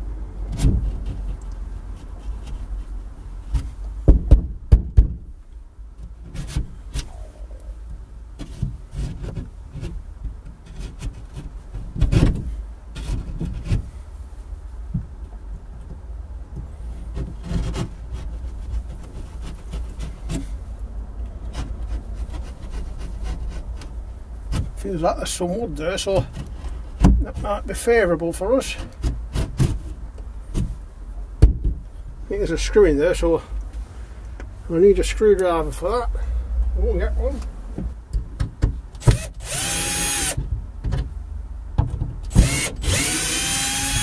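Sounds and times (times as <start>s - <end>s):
knocks: 3.5s - 5.2s.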